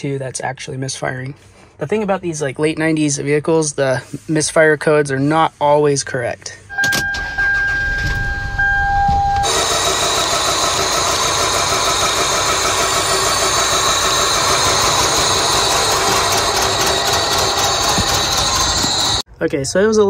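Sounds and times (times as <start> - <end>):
electronic tone: 6.7 - 9.5
car engine idling rough: 9.4 - 19.2.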